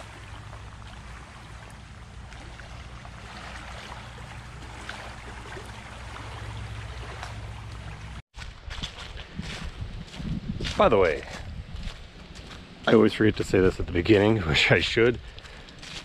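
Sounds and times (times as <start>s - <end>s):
waves lapping at shoreline: 0.0s - 10.2s.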